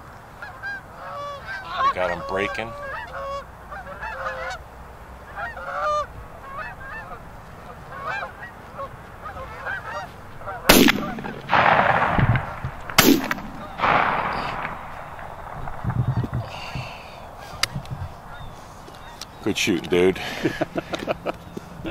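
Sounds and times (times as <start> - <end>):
geese honking: 0.4 - 21.9
loud shotgun shots: 10.7 - 16.3.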